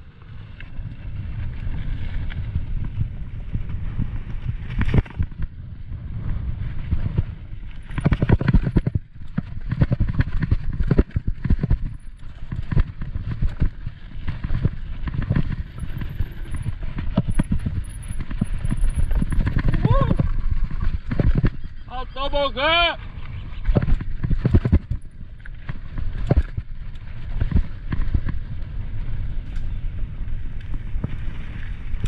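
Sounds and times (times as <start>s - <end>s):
tyres on dirt trail: 0.0s - 32.0s
wind rumbling on microphone: 0.0s - 32.0s
bike rattling and knocking: 6.7s - 22.0s, 23.6s - 32.0s.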